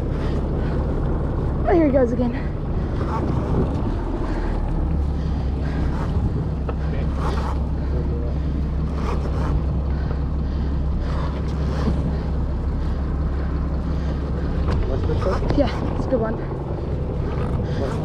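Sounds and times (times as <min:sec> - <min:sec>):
boat engine running: 0:00.0 - 0:18.0
wind on microphone: 0:02.5 - 0:07.8.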